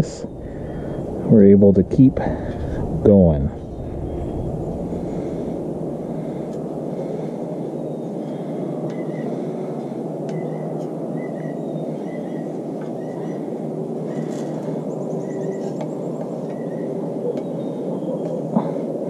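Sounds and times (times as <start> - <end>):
steady rumbling background noise: 0.0 - 19.0.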